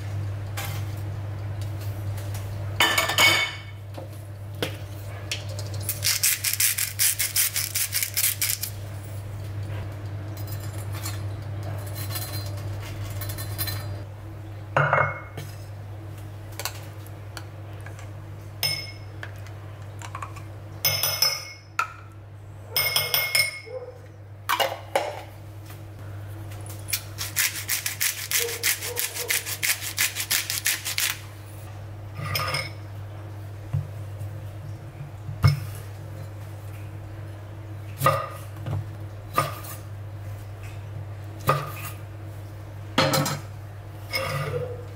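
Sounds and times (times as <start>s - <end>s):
knife cutting crunchy fried food: 27.0s - 31.2s.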